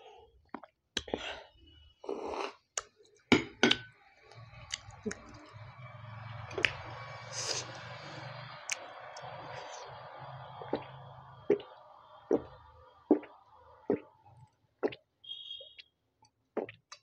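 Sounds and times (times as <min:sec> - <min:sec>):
person gulping a drink: 0:00.4 - 0:01.3, 0:13.1 - 0:14.1, 0:16.6 - 0:17.0.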